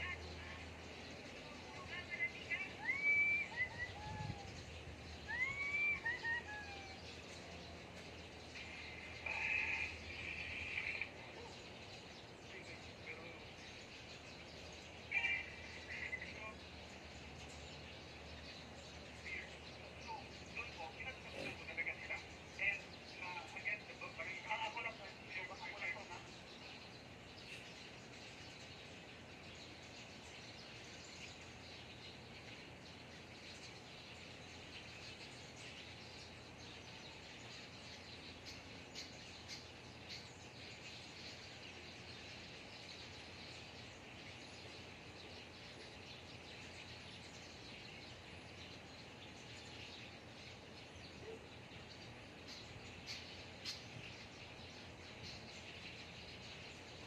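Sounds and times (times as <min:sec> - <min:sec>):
birds chirping: 0:00.0 - 0:57.0.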